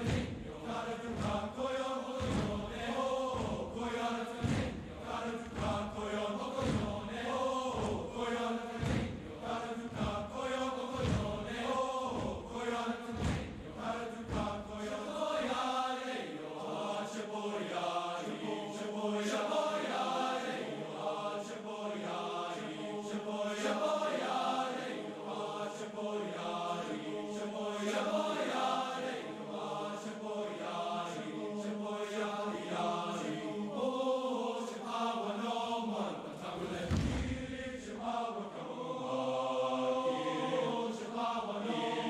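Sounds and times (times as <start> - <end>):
men's chorus singing: 0.0 - 42.0.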